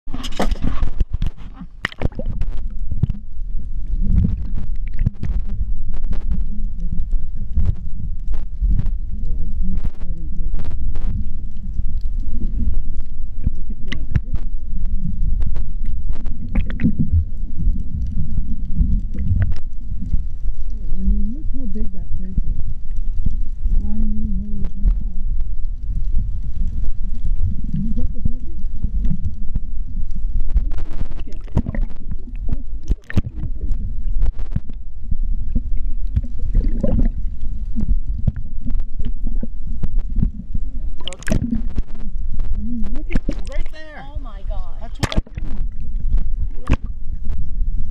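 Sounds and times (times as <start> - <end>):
clicks and crackles: 0.0 - 47.9
muffled underwater rumble: 0.0 - 47.9.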